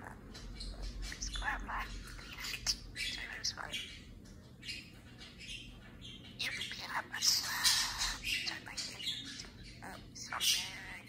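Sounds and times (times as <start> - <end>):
budgerigar chirping: 4.6 - 11.0.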